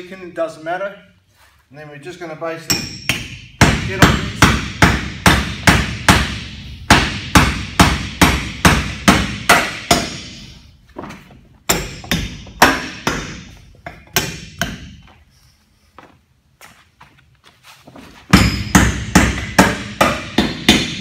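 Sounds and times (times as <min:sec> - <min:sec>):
hammer blows on bolts: 0:02.7 - 0:10.6, 0:18.3 - 0:21.0.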